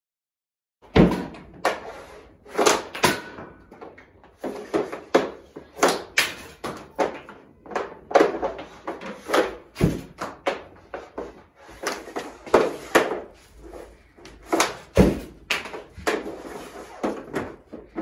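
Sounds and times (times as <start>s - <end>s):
puck striking target: 0.8s - 1.9s, 2.5s - 13.4s, 14.2s - 18.0s
hockey stick slapping tile: 0.9s - 18.0s.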